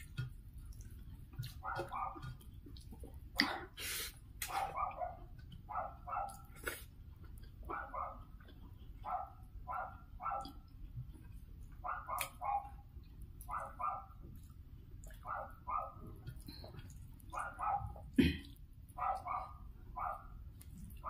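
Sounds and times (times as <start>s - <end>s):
dog barking: 1.6s - 2.4s, 4.4s - 6.5s, 7.6s - 8.3s, 9.0s - 10.6s, 11.8s - 12.8s, 13.4s - 14.2s, 15.1s - 16.1s, 17.3s - 18.1s, 19.0s - 20.4s.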